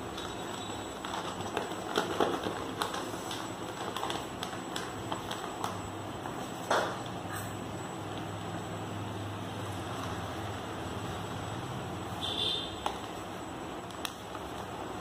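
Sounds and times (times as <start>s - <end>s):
newspaper rustling and crinkling: 0.0s - 6.7s.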